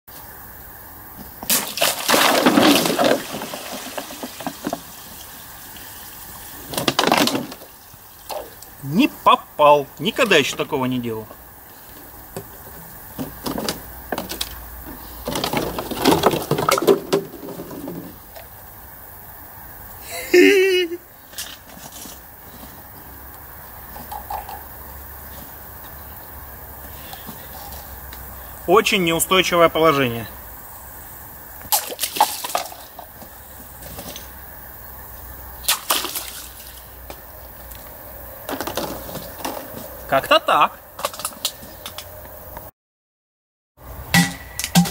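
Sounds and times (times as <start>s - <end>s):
plastic bottles crackling: 1.5s - 5.4s, 6.4s - 8.5s, 13.2s - 18.2s
water splashing: 1.5s - 9.3s, 31.7s - 33.0s, 35.6s - 37.1s.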